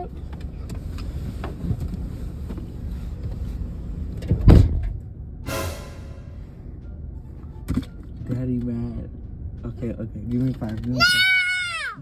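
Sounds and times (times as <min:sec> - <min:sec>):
low steady rumble: 0:00.0 - 0:10.3
short pitched sound: 0:05.5 - 0:06.7.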